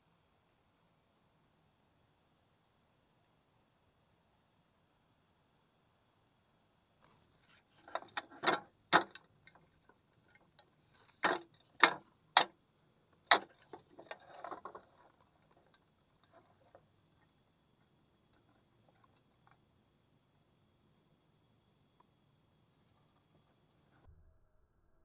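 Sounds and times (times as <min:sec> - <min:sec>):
plastic box clicks and knocks: 0:07.8 - 0:09.7, 0:10.4 - 0:12.6, 0:13.2 - 0:16.7.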